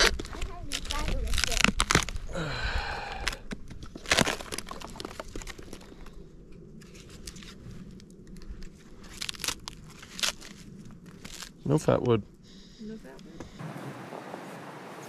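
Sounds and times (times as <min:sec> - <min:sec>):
wood snapping crack: 0:00.0 - 0:02.3, 0:03.0 - 0:06.1, 0:07.2 - 0:11.6
wood crunching and snapping: 0:00.0 - 0:06.2, 0:06.8 - 0:11.6
rotten wood cracking and tearing: 0:00.0 - 0:12.2.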